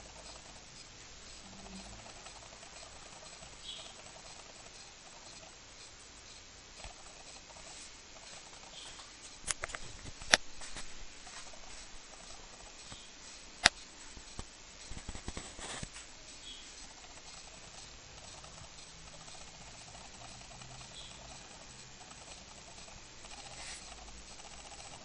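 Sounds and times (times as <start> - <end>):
faint background hiss: 0.0 - 25.0
sharp clicks and taps: 8.9 - 10.5, 12.3 - 15.9.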